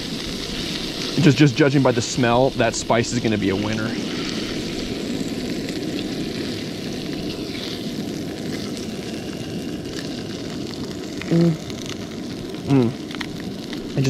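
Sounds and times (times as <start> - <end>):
fish sizzling in butter in a pan: 0.0 - 14.0
short voiced sound: 12.7 - 13.0.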